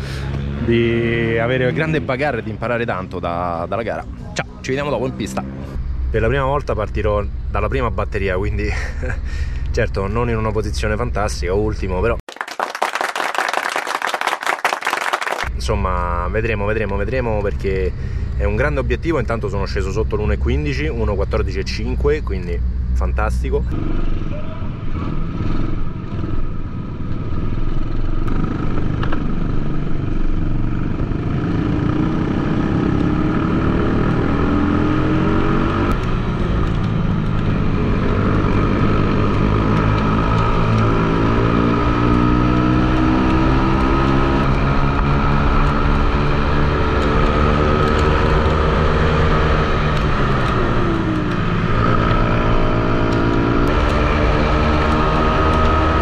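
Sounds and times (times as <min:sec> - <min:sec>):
minibike engine accelerating: 0:19.7 - 0:56.0.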